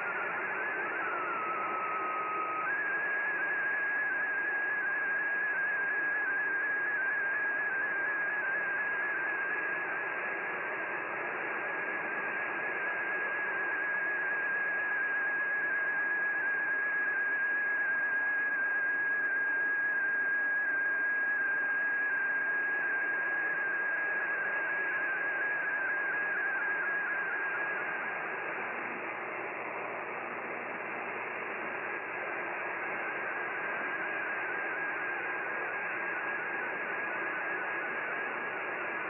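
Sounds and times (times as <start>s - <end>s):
wavering whistle-like radio tone: 0.0s - 39.0s
radio hiss and static: 27.4s - 39.0s.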